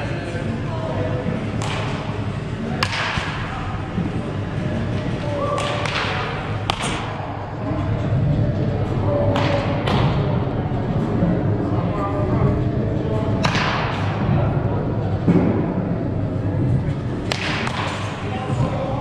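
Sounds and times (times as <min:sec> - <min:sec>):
balls striking netting: 0:01.5 - 0:03.5, 0:04.9 - 0:07.2, 0:17.2 - 0:18.7.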